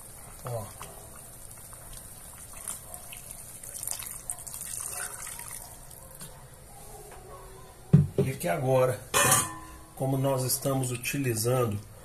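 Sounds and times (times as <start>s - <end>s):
water pouring into pot: 0.0s - 5.9s.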